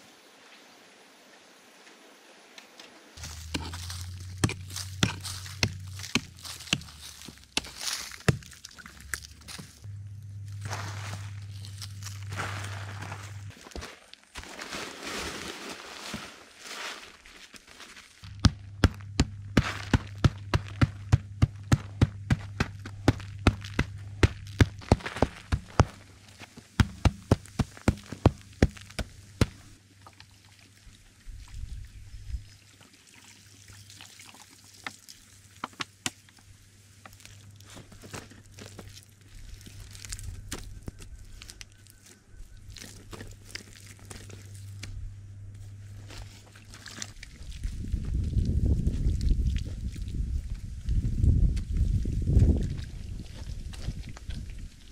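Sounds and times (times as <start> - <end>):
wooden club pounding clay: 3.4 - 8.5, 18.3 - 26.0, 26.8 - 29.7.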